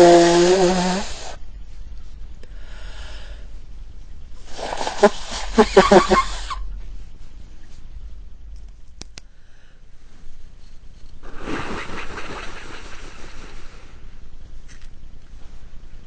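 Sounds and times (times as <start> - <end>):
person blowing nose: 0.0 - 1.4, 4.4 - 6.6.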